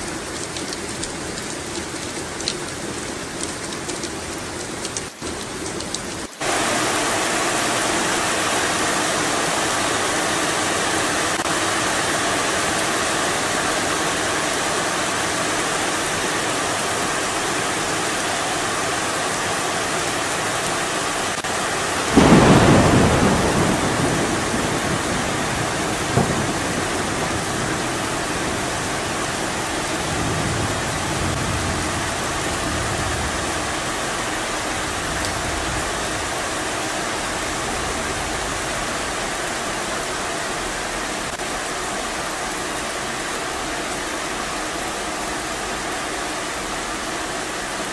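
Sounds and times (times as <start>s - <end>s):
heavy rain falling: 0.0s - 47.9s
thunder clap rumbling: 22.0s - 36.6s.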